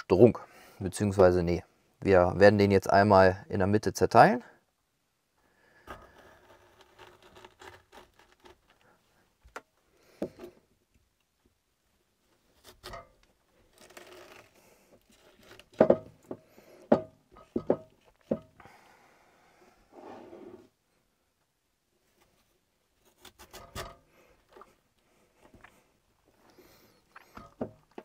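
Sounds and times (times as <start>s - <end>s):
knife cutting cabbage: 5.9s - 8.8s, 23.0s - 24.1s.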